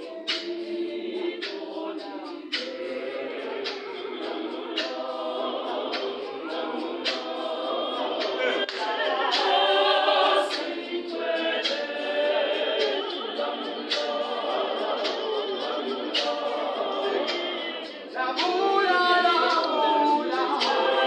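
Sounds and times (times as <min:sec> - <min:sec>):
choir singing a cappella: 0:00.0 - 0:21.0
hand claps: 0:00.3 - 0:00.8, 0:01.4 - 0:01.7, 0:02.5 - 0:02.8, 0:04.8 - 0:05.1, 0:07.0 - 0:07.4, 0:08.1 - 0:09.8, 0:10.5 - 0:10.9, 0:11.6 - 0:12.0, 0:12.8 - 0:14.2, 0:14.8 - 0:16.5, 0:18.4 - 0:18.6, 0:19.4 - 0:20.9.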